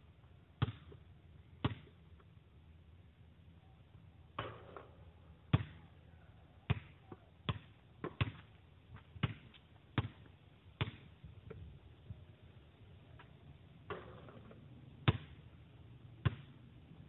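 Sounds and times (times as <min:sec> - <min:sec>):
basketball bouncing on asphalt: 0:00.6 - 0:02.4, 0:04.3 - 0:06.0, 0:06.6 - 0:12.1, 0:13.2 - 0:16.9
basketball hitting hoop: 0:07.5 - 0:08.4.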